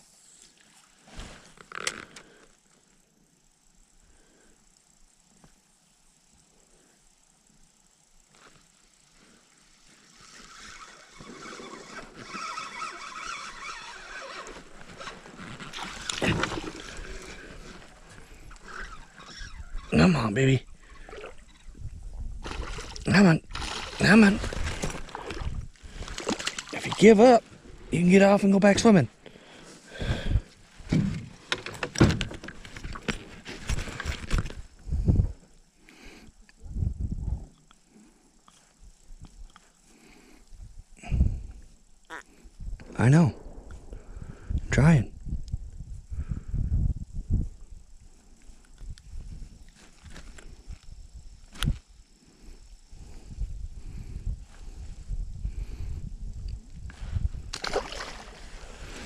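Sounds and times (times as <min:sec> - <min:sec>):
fishing reel whirring: 0:08.9 - 0:21.8
fish thrashing in a boat: 0:22.4 - 0:27.0.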